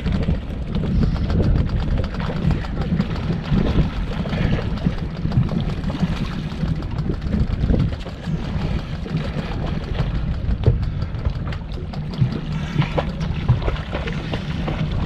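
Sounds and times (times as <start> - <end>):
water moving against boat: 0.0 - 15.0
wind buffeting microphone: 0.0 - 15.0.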